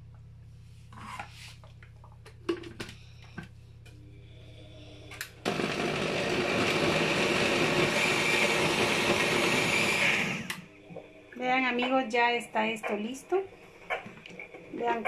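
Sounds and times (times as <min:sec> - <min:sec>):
blender motor running: 0:05.2 - 0:10.7.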